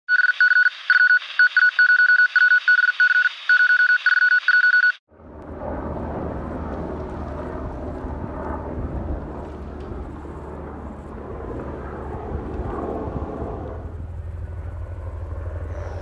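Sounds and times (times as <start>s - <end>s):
helicopter rotor rumble: 5.1s - 16.0s.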